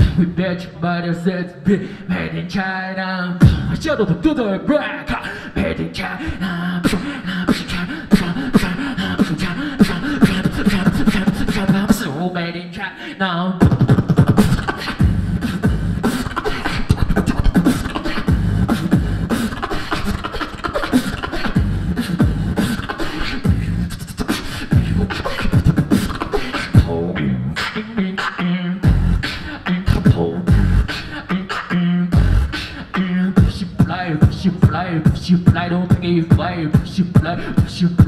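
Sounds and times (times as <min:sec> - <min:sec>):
beatboxing into microphone: 0:00.0 - 0:38.0
deep held bass notes: 0:15.0 - 0:16.1, 0:18.3 - 0:19.3, 0:21.6 - 0:22.6, 0:28.8 - 0:29.2, 0:29.9 - 0:30.9, 0:32.1 - 0:32.5.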